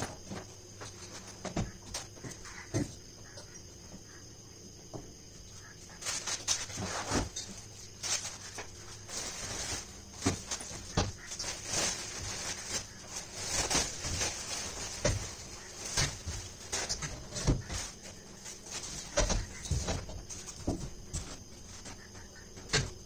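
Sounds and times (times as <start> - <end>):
plastic wrapping crinkling: 6.0 - 21.9.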